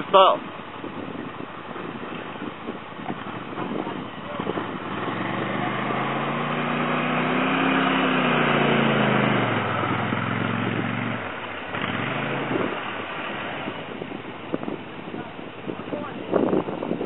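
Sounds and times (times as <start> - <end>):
quad bike engine revving past: 3.6 - 14.1.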